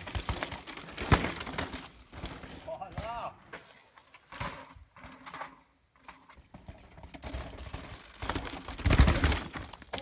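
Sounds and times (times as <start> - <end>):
bike chain and frame clattering: 4.3 - 10.0.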